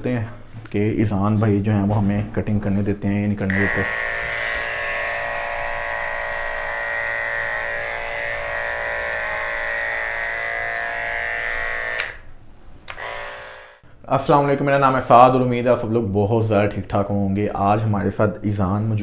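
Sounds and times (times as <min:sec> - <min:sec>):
electric hair clipper humming: 0:03.5 - 0:12.3, 0:12.9 - 0:13.8.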